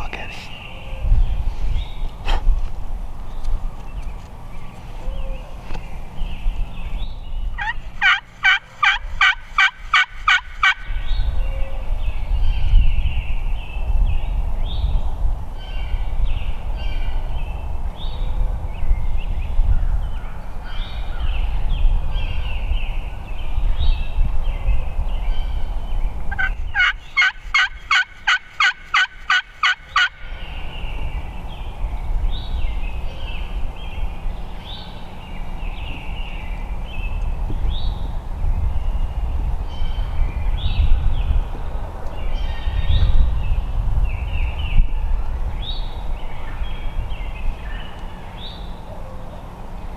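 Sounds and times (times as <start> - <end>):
songbirds chirping: 0.0 - 49.9
turkey yelps: 7.6 - 10.8, 26.3 - 30.2.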